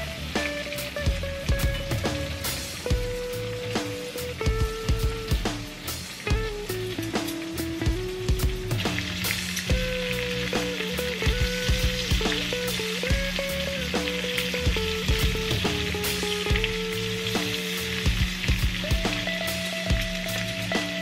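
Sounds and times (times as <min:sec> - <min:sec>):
shrimp sizzling in a skillet: 0:00.0 - 0:21.0
soft background music: 0:00.0 - 0:21.0.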